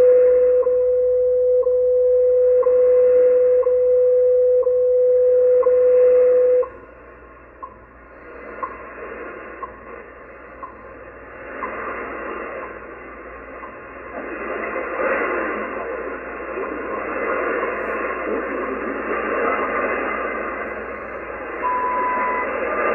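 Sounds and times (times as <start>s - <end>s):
time signal ticks: 0.0s - 14.8s, 21.5s - 22.9s
steady radio tone: 0.0s - 22.9s
radio static: 8.2s - 22.9s.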